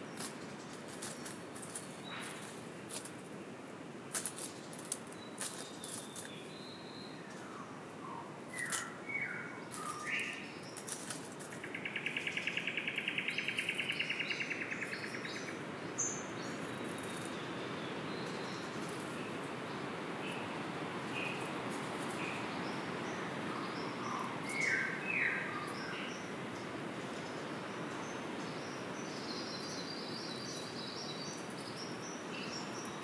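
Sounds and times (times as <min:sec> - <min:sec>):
forest background hiss: 0:00.0 - 0:33.0
sharp clicks and rustles: 0:04.1 - 0:06.3
bird chirps: 0:11.5 - 0:19.3, 0:22.1 - 0:26.3.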